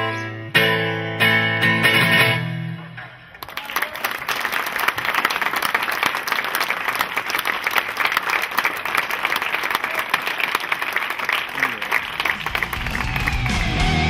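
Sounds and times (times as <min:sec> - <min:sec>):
guitar music: 0:00.0 - 0:03.3, 0:12.6 - 0:14.0
audience applauding: 0:03.4 - 0:14.0.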